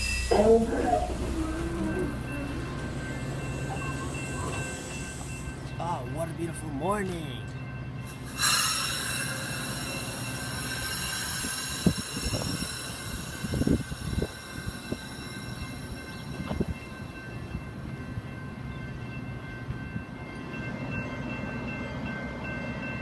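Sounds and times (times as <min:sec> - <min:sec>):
low train rumble: 0:00.0 - 0:23.0
train clunks: 0:00.0 - 0:23.0
loud hiss of air: 0:08.2 - 0:15.1.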